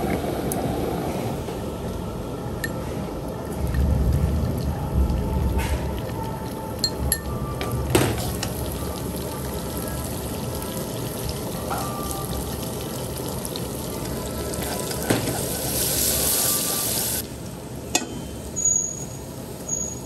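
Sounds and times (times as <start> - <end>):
garlic sizzling in hot oil: 8.0 - 17.2.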